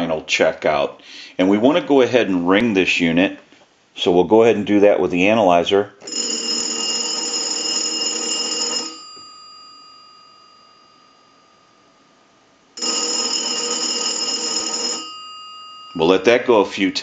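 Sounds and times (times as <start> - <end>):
payphone bell ringing: 6.0 - 12.0, 12.8 - 16.5.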